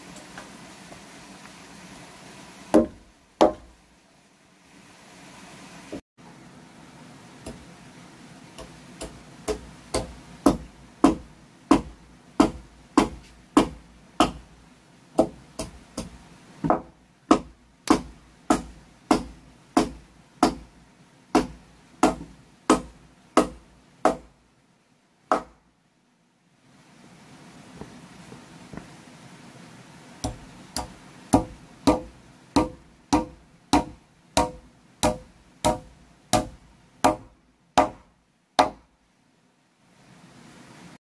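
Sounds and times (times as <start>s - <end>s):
hammer striking wooden plank: 2.7s - 3.7s, 8.6s - 14.5s, 15.2s - 20.7s, 21.4s - 24.3s, 25.3s - 25.6s, 30.2s - 38.9s.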